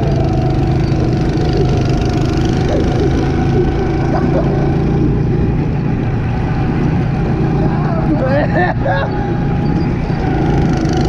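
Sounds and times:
go-kart engine running: 0.0s - 11.0s.

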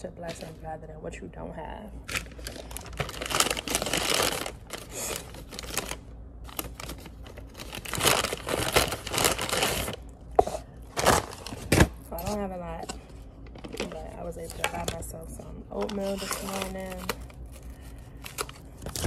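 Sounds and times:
paper bag rustling: 2.2s - 10.0s, 15.8s - 19.0s.

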